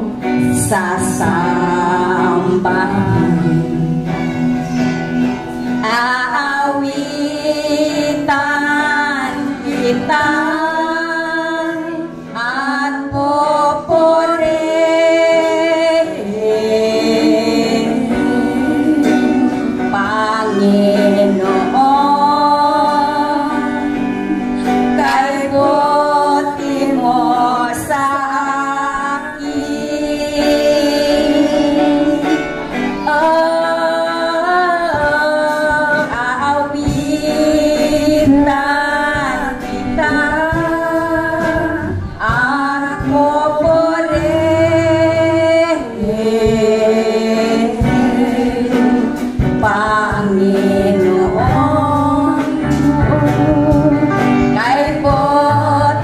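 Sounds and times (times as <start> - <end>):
drum kit: 0.0 - 56.0
guitar: 0.0 - 56.0
woman singing: 0.0 - 56.0.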